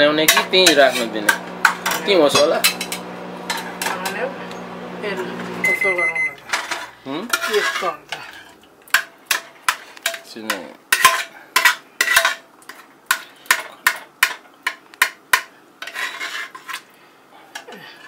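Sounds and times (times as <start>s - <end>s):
metal spoon scraping a pot: 0.2s - 3.9s, 6.5s - 10.2s, 10.9s - 13.9s, 15.8s - 16.9s.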